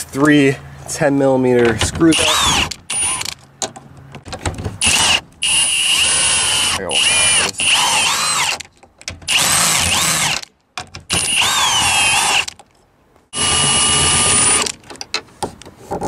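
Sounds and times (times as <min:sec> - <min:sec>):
power drill whining: 0:02.1 - 0:03.3, 0:04.8 - 0:08.6, 0:09.3 - 0:10.5, 0:11.1 - 0:12.6, 0:13.4 - 0:14.8.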